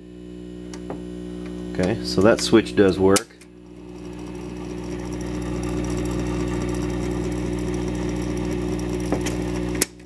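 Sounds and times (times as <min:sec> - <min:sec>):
amplifier mains hum: 0:00.0 - 0:10.0.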